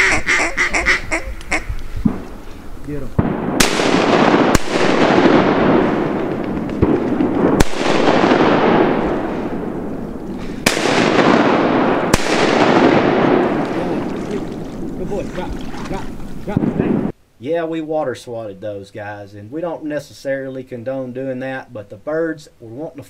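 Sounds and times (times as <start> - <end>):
shotgun blasts with rolling echo: 3.2 - 15.0, 16.5 - 17.1.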